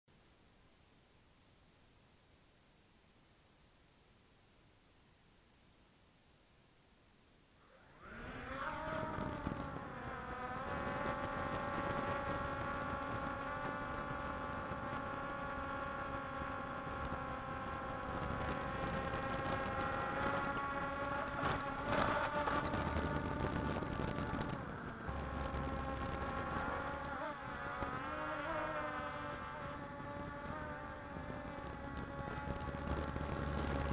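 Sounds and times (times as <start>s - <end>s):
quadcopter motors buzzing: 7.6s - 33.9s.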